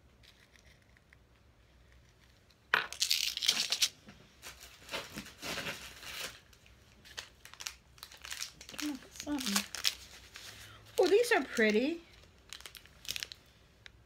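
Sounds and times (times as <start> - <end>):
plastic packaging rustling: 3.0 - 13.5.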